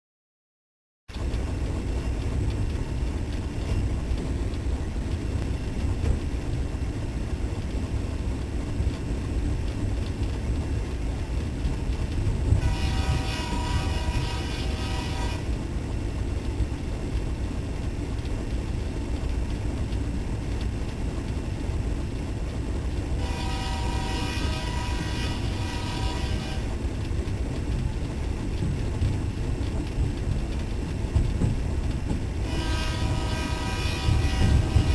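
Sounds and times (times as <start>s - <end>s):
diesel locomotive engines rumbling: 1.1s - 34.9s
train air horn: 12.6s - 15.6s, 23.2s - 26.8s, 32.4s - 34.9s.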